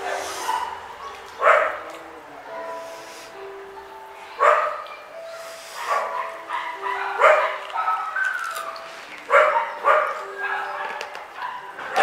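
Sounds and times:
dog barking: 0.0s - 1.9s, 4.4s - 5.0s, 5.7s - 12.0s.

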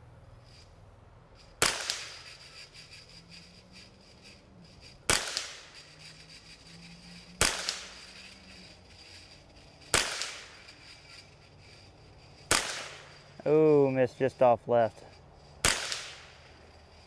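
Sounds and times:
rifle shots: 1.6s - 2.6s, 5.1s - 5.8s, 7.4s - 8.3s, 9.8s - 11.0s, 12.4s - 13.2s, 15.6s - 16.5s.

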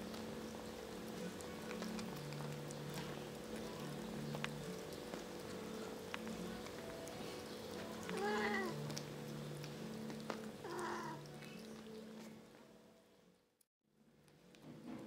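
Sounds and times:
kittens humming while eating: 0.0s - 12.6s
chewing clicks: 0.1s - 12.4s
kitten mewing: 8.0s - 8.8s, 10.6s - 11.3s.

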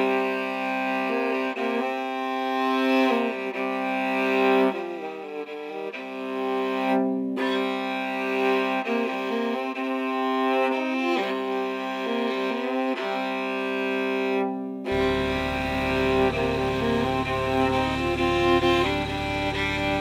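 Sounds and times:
bowed strings music: 0.0s - 20.0s
low steady hum: 14.9s - 20.0s.

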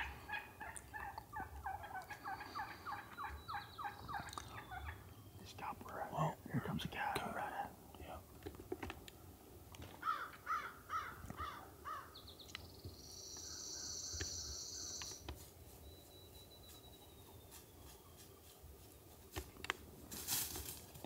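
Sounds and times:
crow cawing: 10.0s - 12.1s.

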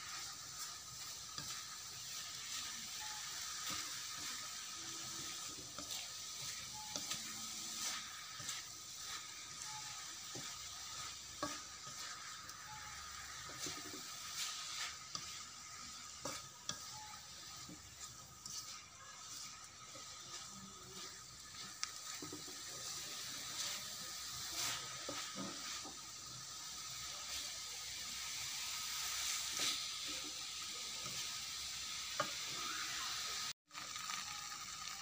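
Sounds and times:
spatula scraping and tapping pan: 0.0s - 26.1s
filling sizzling in a wok: 0.0s - 35.0s.

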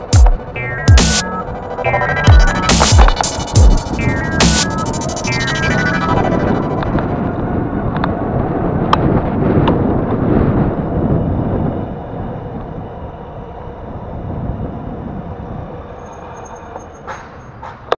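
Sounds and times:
road rumble: 0.0s - 17.9s
wind: 0.0s - 17.9s.

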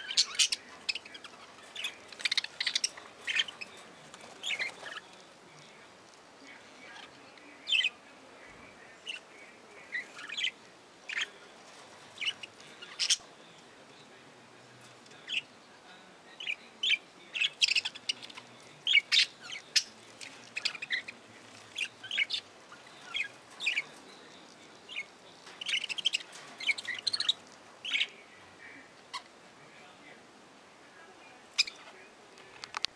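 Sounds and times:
budgerigars chirping: 0.0s - 3.8s, 4.4s - 5.0s, 12.2s - 13.2s, 16.4s - 24.3s, 24.9s - 28.2s, 31.6s - 31.8s.

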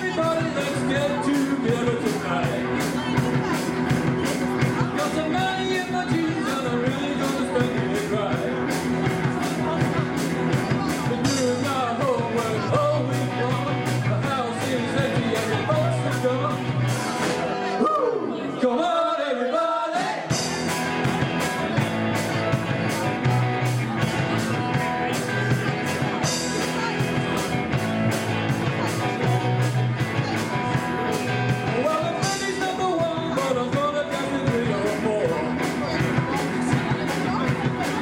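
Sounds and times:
drum kit steady beat: 0.0s - 17.8s, 20.0s - 38.0s
electric guitars: 0.0s - 18.2s, 20.3s - 38.0s
person singing: 11.0s - 20.8s.

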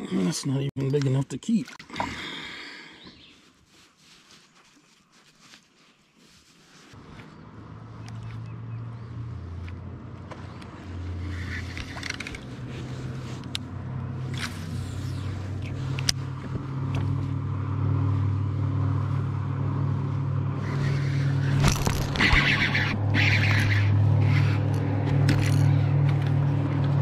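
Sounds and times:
low motor hum: 7.0s - 27.0s
fishing reel clicks and rustles: 11.2s - 12.7s.

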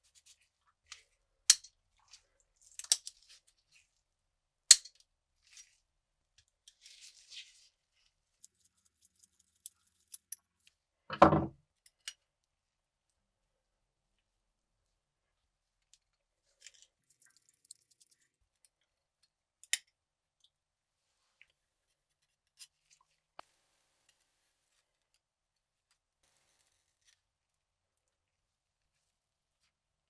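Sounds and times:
small metal parts clicking: 8.4s - 10.4s, 16.6s - 18.3s.

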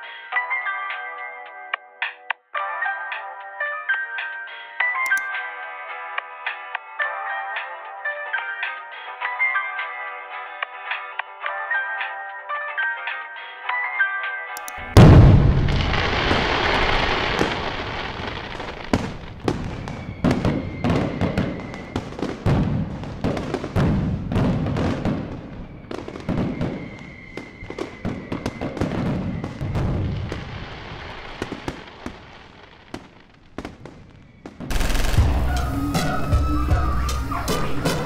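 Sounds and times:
firework whistle: 14.8s - 23.8s, 24.4s - 33.1s, 34.1s - 38.0s
firework shells booming: 14.8s - 36.3s
fireworks crackling and popping: 14.8s - 37.9s.

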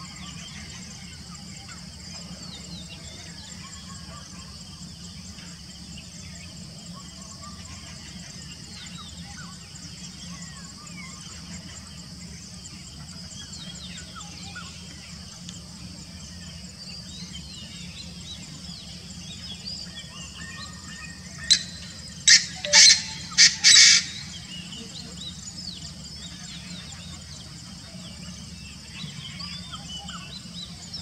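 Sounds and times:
insect drone with pulsing trill: 0.0s - 31.0s
small birds chirping: 0.1s - 31.0s
low steady hum: 20.8s - 28.8s.

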